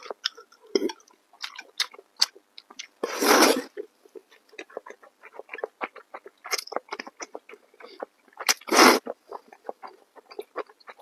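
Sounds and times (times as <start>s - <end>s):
noodles slurped: 3.0s - 11.0s
wet chewing mouth clicks: 3.7s - 11.0s.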